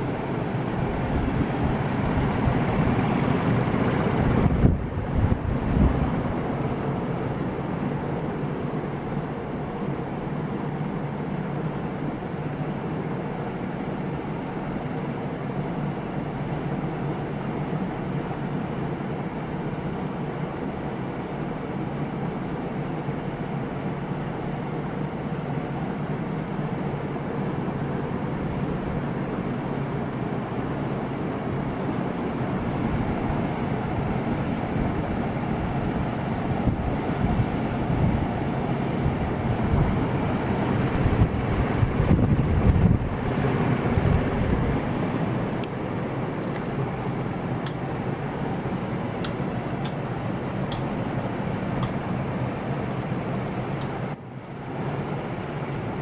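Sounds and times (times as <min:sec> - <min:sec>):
wind buffeting microphone: 0:00.0 - 0:06.5, 0:31.0 - 0:45.6
ceiling fans whirring: 0:00.0 - 0:56.0.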